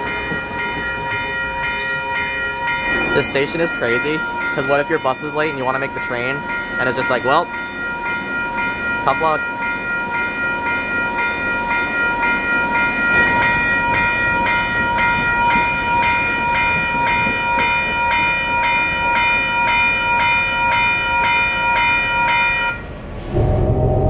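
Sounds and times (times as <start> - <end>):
railroad crossing bell ringing: 0.0 - 24.0
low rumble: 22.8 - 24.0
vehicle engine with rising whine: 22.8 - 24.0.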